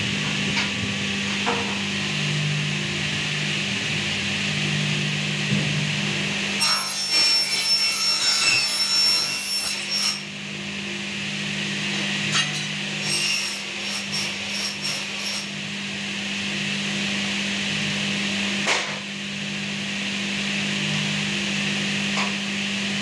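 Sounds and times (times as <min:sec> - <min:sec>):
cutting machine humming: 0:00.0 - 0:23.0
saw cutting metal with ringing: 0:06.5 - 0:10.4, 0:12.0 - 0:15.7.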